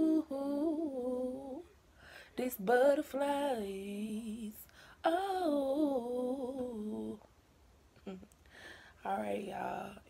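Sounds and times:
woman singing unaccompanied: 0:00.0 - 0:01.7, 0:02.3 - 0:07.3, 0:09.0 - 0:10.0
woman breathing: 0:01.9 - 0:02.4, 0:04.6 - 0:05.0, 0:08.4 - 0:09.0.

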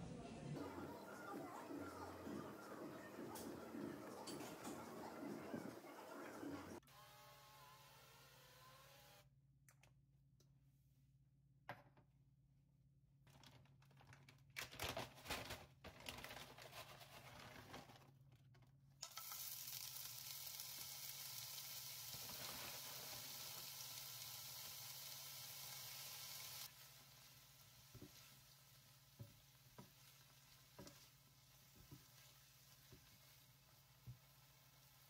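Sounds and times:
onions sizzling in hot oil: 0:19.0 - 0:35.0.

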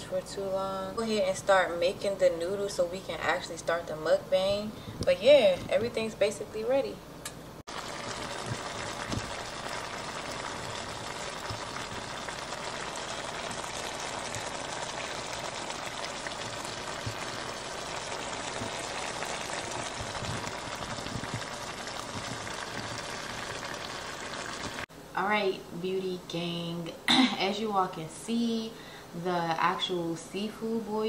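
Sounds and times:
food sizzling and bubbling in skillet: 0:07.7 - 0:24.9.

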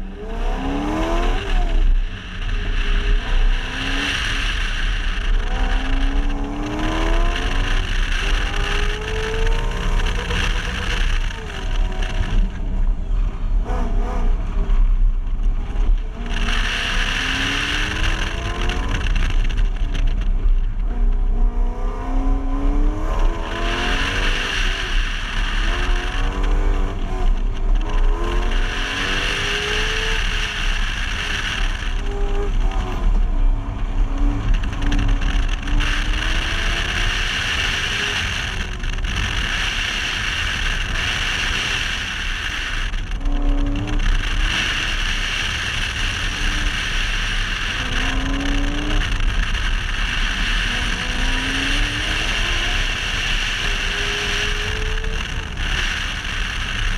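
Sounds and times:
tires squealing: 0:00.0 - 0:12.6
car engine revving at full throttle: 0:00.0 - 0:56.9
wind rumble on microphone: 0:00.0 - 0:56.9.

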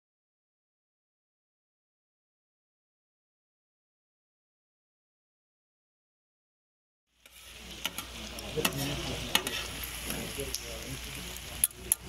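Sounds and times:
fat sizzling in metal pan: 0:07.1 - 0:12.0
metal spatulas scraping and clacking: 0:07.2 - 0:10.6.

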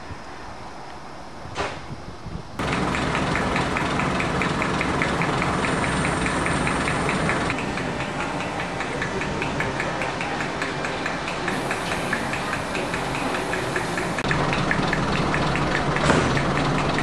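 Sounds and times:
diesel locomotive engine running: 0:02.6 - 0:17.0
station background: 0:02.6 - 0:17.0.

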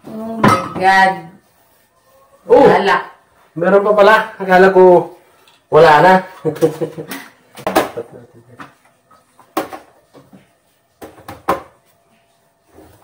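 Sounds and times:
items knocking on fridge shelves: 0:11.0 - 0:11.8.

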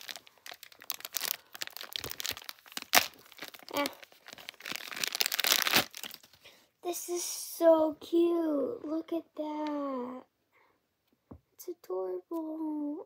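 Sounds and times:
plastic bag crinkling and tearing: 0:00.0 - 0:06.5.

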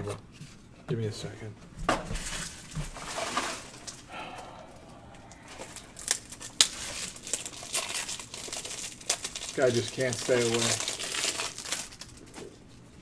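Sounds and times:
plastic packaging crinkling: 0:02.2 - 0:04.1, 0:05.3 - 0:13.0.

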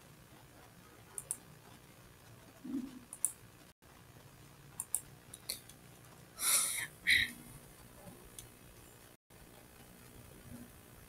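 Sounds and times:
computer mouse clicks: 0:01.1 - 0:03.4, 0:04.8 - 0:05.8.

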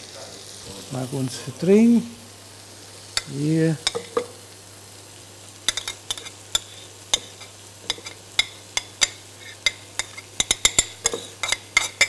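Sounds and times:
faint steady hiss: 0:00.0 - 0:12.0
spoon clinking on ceramic dish: 0:03.8 - 0:04.3, 0:05.7 - 0:12.0.

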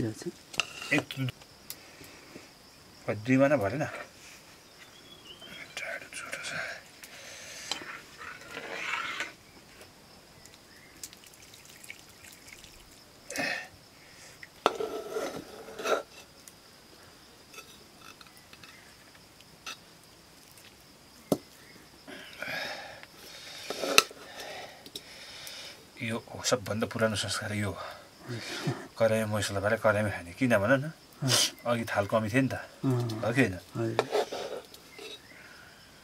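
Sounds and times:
metal spoon scraping metal pot: 0:00.6 - 0:01.1, 0:07.7 - 0:09.4, 0:14.6 - 0:16.3, 0:34.0 - 0:35.2.

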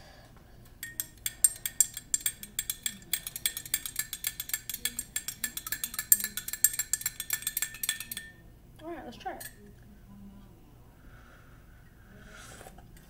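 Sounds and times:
spoon clinking in ceramic mug: 0:00.8 - 0:08.4.

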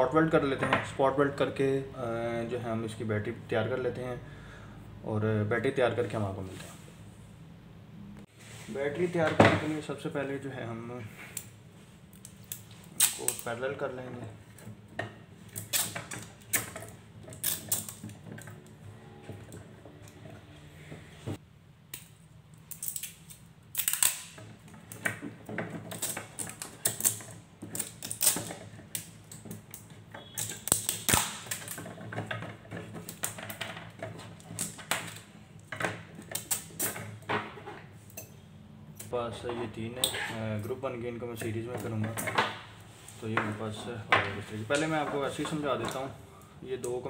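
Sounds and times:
battery cells clacking on wood: 0:21.9 - 0:37.3.

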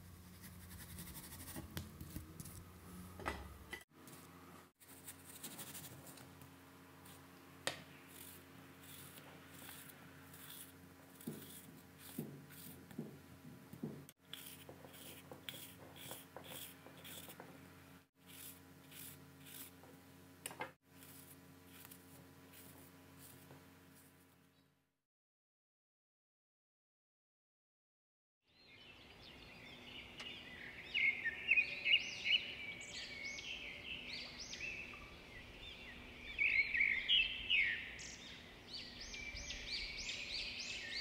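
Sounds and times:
low steady hum: 0:00.0 - 0:24.7
knife slicing apple: 0:00.4 - 0:02.6, 0:07.1 - 0:13.2, 0:13.8 - 0:17.6, 0:18.2 - 0:20.0
knife knocking on wooden board: 0:11.2 - 0:13.2, 0:13.8 - 0:14.1.

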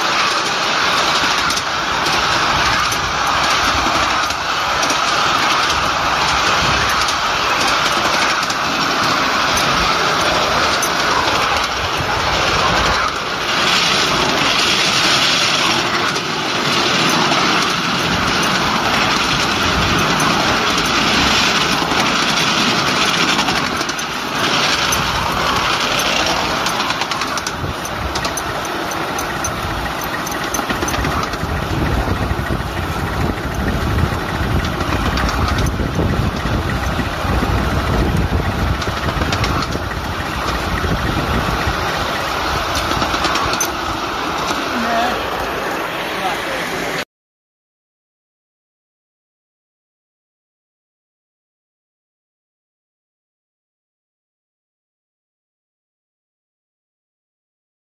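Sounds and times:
rapid clicking: 0:00.0 - 0:46.0
steam locomotive hissing: 0:00.0 - 0:47.0.

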